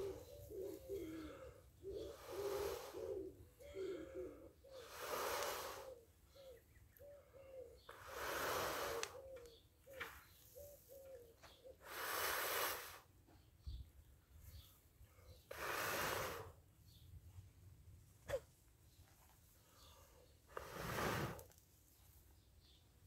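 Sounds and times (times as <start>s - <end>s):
dove cooing: 0.0s - 4.9s, 5.8s - 7.9s, 8.9s - 11.8s
person blowing hard: 4.8s - 5.9s, 7.9s - 9.2s, 11.8s - 13.1s, 15.5s - 16.6s, 20.5s - 21.4s.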